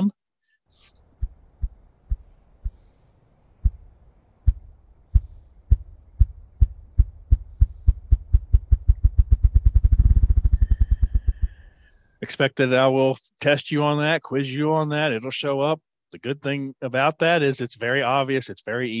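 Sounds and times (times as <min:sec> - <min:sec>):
grouse wings drumming: 0:05.2 - 0:11.7.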